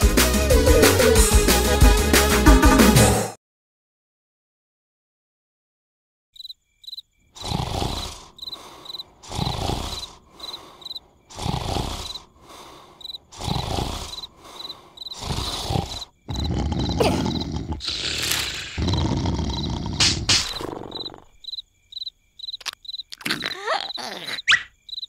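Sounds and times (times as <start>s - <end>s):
crickets chirping: 6.4s - 25.0s
cartoon snoring: 7.4s - 21.4s, 23.1s - 24.7s.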